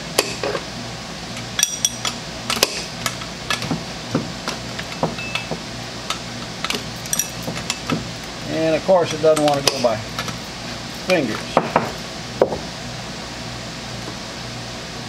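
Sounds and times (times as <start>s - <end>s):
wrench clinking on metal nut: 6.6s - 7.9s.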